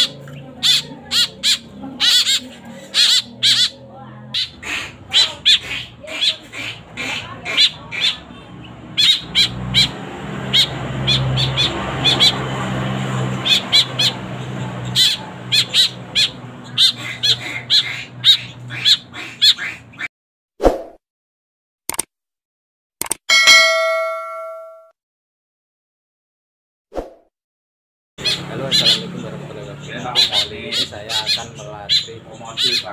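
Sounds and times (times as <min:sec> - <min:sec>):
fledgling birds calling: 0:00.0 - 0:20.1, 0:28.2 - 0:32.9.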